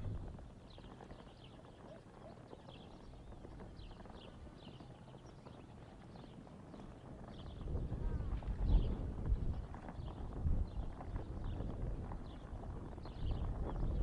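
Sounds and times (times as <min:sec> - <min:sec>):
low steady rumble: 0:00.0 - 0:00.5.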